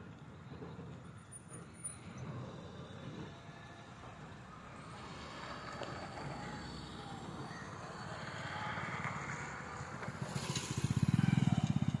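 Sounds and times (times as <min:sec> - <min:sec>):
small engine running: 0:04.7 - 0:12.0.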